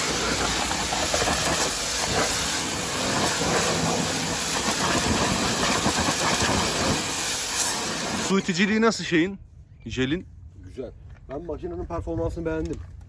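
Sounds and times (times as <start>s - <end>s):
pressure washer jet hissing: 0.0s - 8.5s.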